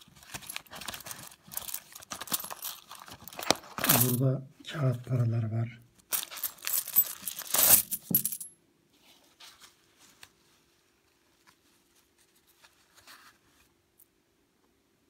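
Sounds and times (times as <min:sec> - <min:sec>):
paper banknotes rustling: 0:00.0 - 0:04.2, 0:06.1 - 0:08.4
metal coins clinking: 0:01.5 - 0:04.2, 0:06.1 - 0:08.6.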